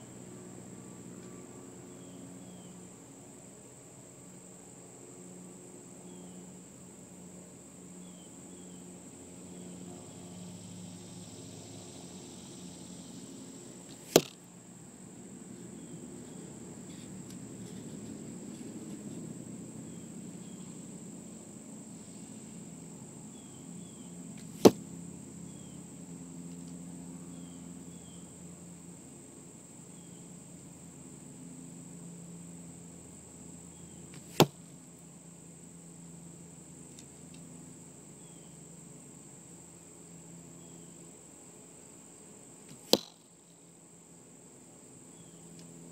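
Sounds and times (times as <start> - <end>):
arrows striking target: 13.9 - 14.4, 24.4 - 24.8, 34.2 - 34.6, 42.7 - 43.2.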